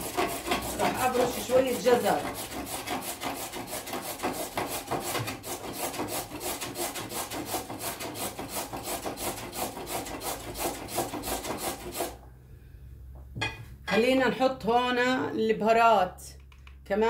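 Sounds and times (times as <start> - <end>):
carrot grating on metal grater: 0.0 - 12.2.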